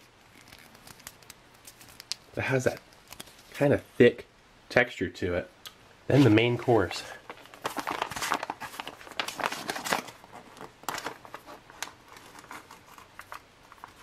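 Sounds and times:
foil crinkling and tearing: 0.2s - 3.6s, 7.3s - 14.0s.

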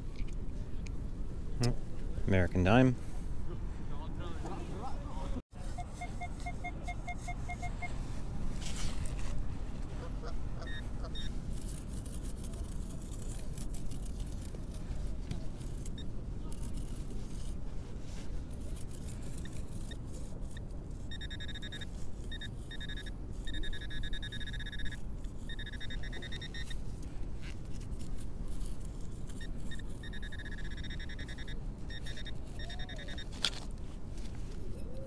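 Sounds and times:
rustling of digging in soil: 5.5s - 35.0s
pinpointer pulsed beeping: 21.1s - 26.8s, 29.4s - 33.3s.

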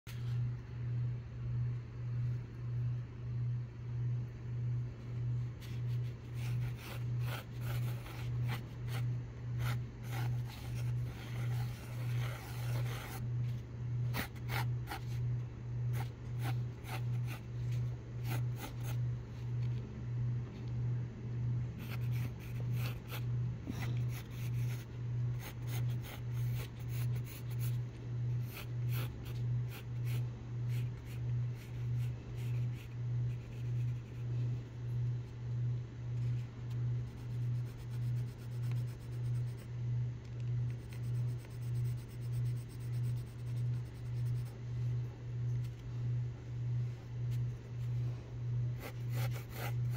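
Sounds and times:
low pulsing hum: 0.1s - 49.9s
pencil scratching on paper: 5.6s - 15.3s, 15.9s - 19.0s, 21.8s - 34.6s, 36.2s - 39.7s, 40.7s - 44.6s, 48.8s - 49.9s.

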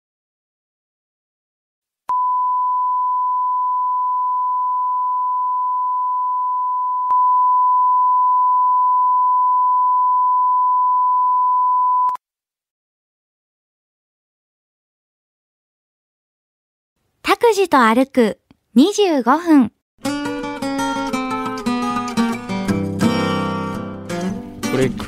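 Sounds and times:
electronic sine test tone: 2.1s - 12.2s.

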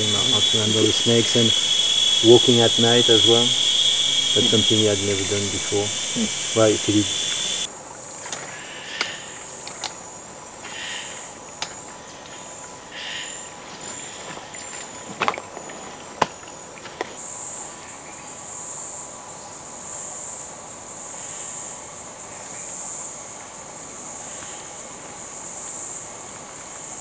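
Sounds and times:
insect chorus trilling: 0.0s - 7.7s, 8.5s - 17.2s
short mid-pitched calls: 0.0s - 7.7s.

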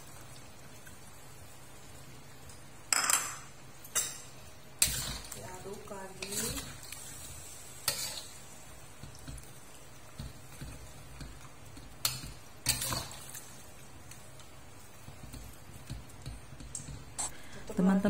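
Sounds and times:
metal spatula stirring in a wok: 6.0s - 9.2s.

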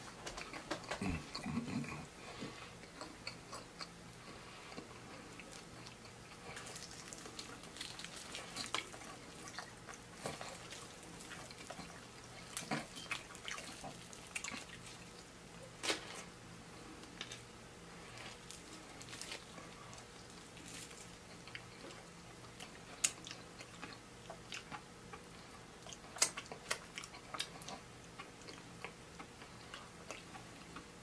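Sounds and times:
wet chewing and lip smacks: 4.7s - 15.3s, 21.3s - 30.9s
crisp crackles of fried chicken: 4.8s - 16.3s, 17.0s - 30.9s.

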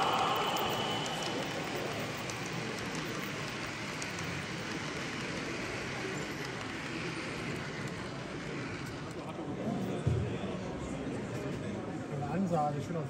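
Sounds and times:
model train wheels rolling on rail: 0.0s - 9.9s.

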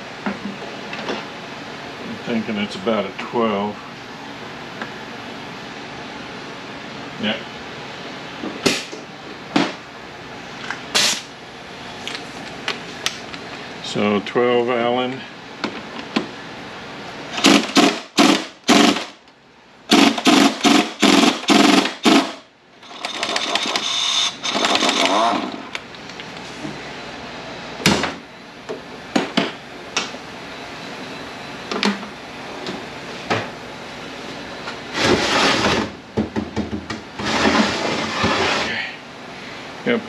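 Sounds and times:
air wrench hammering on bolt: 17.4s - 19.1s, 19.9s - 25.2s
heavy case scraping on bench: 34.9s - 35.9s, 37.2s - 38.8s.

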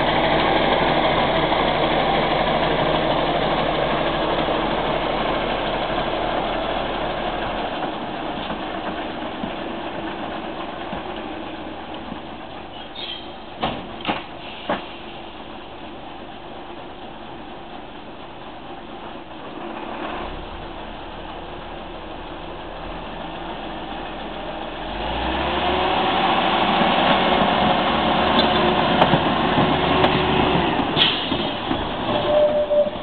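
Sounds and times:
diesel locomotive engine running: 0.0s - 33.0s
high squeal: 32.1s - 33.0s.

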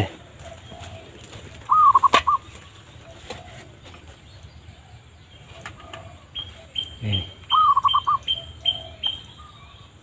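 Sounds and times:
bird lure whistle: 7.5s - 9.4s.

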